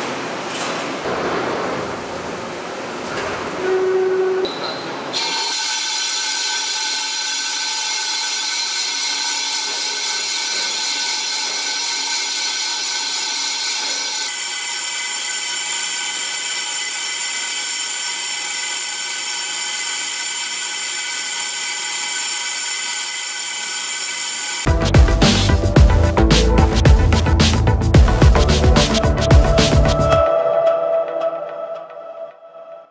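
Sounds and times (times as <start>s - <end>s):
lathe machining hiss and whine: 5.1s - 24.7s.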